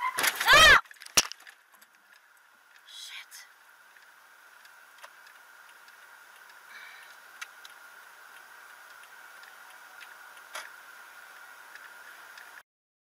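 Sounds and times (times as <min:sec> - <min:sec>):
light ticks: 0:03.9 - 0:06.6, 0:07.4 - 0:10.8.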